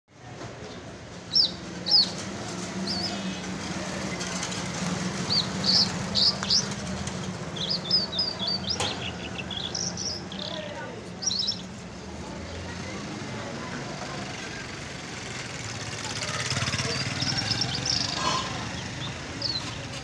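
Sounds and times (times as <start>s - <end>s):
lark chirping: 5.2s - 6.8s, 7.5s - 10.6s, 11.2s - 11.7s.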